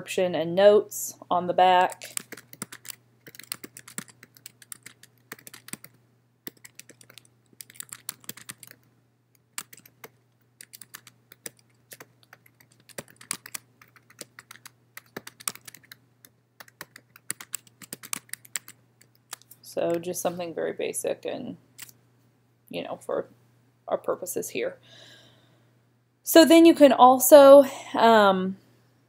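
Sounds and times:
keyboard typing: 0:01.9 - 0:20.0.

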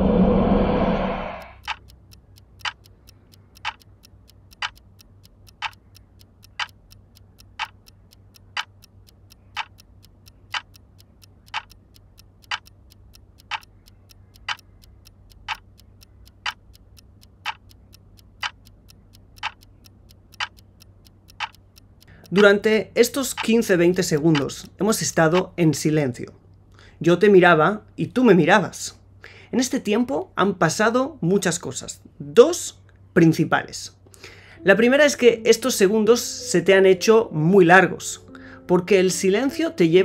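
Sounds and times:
clock ticking: 0:01.2 - 0:26.3, 0:34.2 - 0:40.0.

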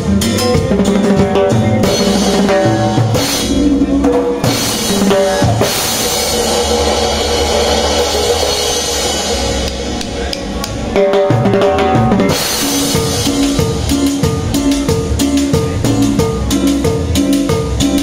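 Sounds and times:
drum kit playing: 0:00.0 - 0:18.0
musical accompaniment: 0:00.0 - 0:18.0
cymbals ringing: 0:00.2 - 0:18.0.

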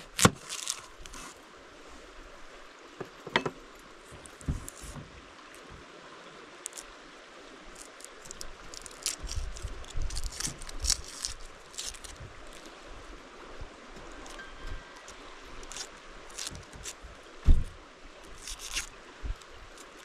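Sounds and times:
onion skin crackling: 0:00.0 - 0:01.4, 0:07.7 - 0:12.7, 0:15.6 - 0:17.0, 0:18.3 - 0:18.9
creek running: 0:00.0 - 0:20.0
low thuds: 0:17.4 - 0:17.8.

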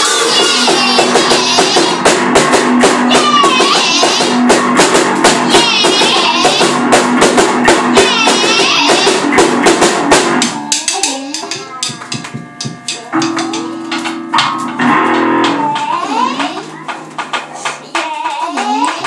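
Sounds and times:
drum kit playing fast rock: 0:00.0 - 0:11.9.

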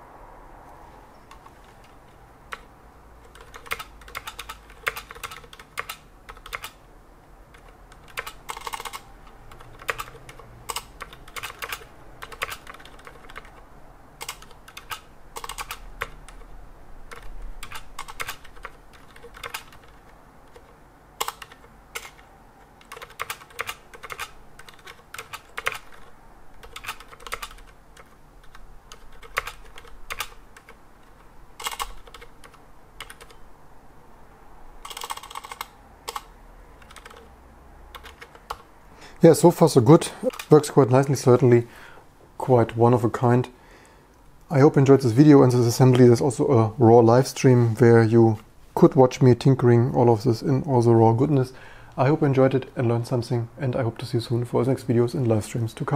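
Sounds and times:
mechanical keyboard typing clicks: 0:01.3 - 0:06.8, 0:07.5 - 0:13.6, 0:14.2 - 0:16.5, 0:17.1 - 0:33.4, 0:34.8 - 0:37.3, 0:37.9 - 0:38.7, 0:40.2 - 0:40.6.

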